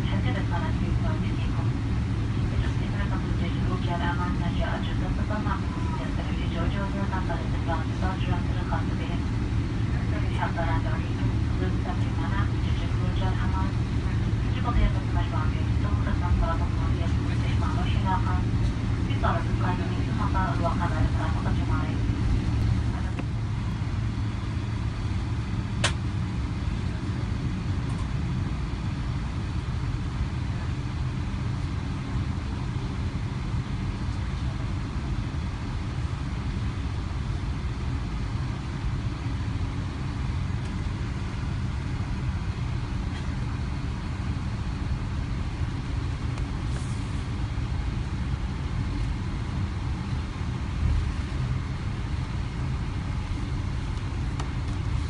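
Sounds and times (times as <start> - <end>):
airplane cabin engine rumble: 0.0 - 55.0
sharp click: 25.8 - 26.0.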